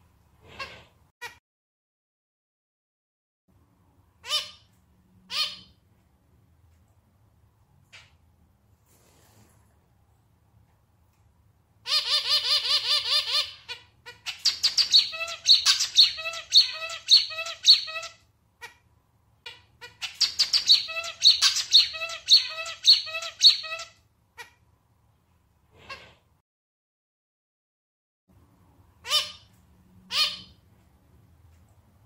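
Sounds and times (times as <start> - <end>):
zebra finch singing: 11.9 - 18.2, 19.5 - 23.9.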